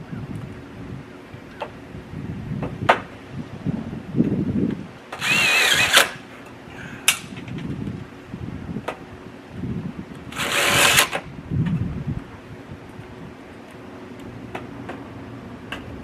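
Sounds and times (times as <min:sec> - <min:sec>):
power drill motor whine: 0:05.2 - 0:06.2, 0:10.3 - 0:11.2.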